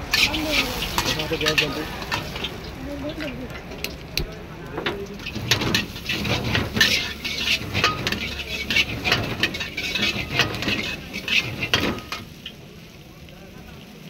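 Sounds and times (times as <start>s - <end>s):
metal spatula clanging on wok: 0.1s - 2.5s, 4.8s - 12.6s.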